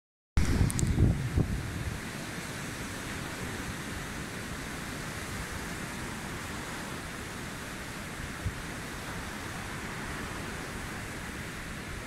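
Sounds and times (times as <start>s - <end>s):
wind rushing: 0.4s - 2.1s
distant surf: 0.4s - 12.0s
wind rumble on microphone: 0.4s - 12.0s.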